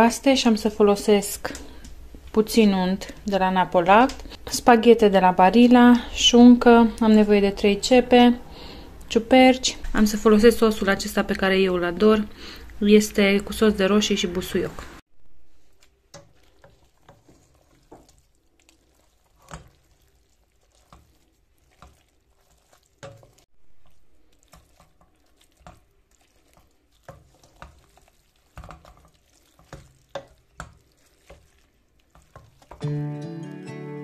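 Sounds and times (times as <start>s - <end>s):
spoon knocking and scraping pot: 16.1s - 18.2s, 23.0s - 25.8s, 27.0s - 32.8s.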